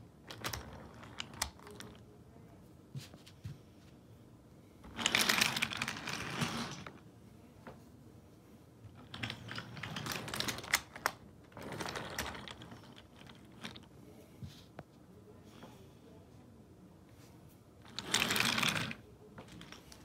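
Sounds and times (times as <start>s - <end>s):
wooden toy train wheels rattling: 4.9s - 7.0s, 8.9s - 13.9s, 17.8s - 20.0s.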